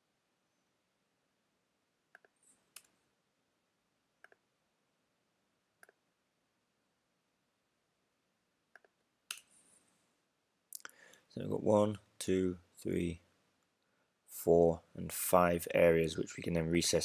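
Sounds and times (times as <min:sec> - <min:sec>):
computer mouse clicks: 0:02.1 - 0:03.0, 0:04.2 - 0:04.5, 0:05.8 - 0:06.0, 0:08.7 - 0:09.5.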